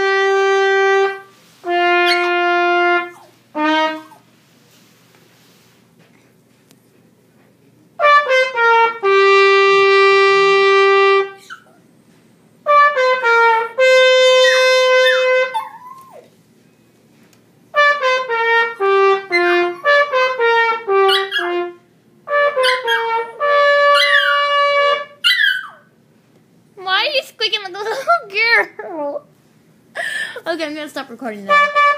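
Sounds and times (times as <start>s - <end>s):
trumpet playing: 0.0s - 4.3s, 8.0s - 11.6s, 12.6s - 15.9s, 17.7s - 25.7s, 31.5s - 31.9s
small dog howling: 14.4s - 16.3s, 24.0s - 24.4s.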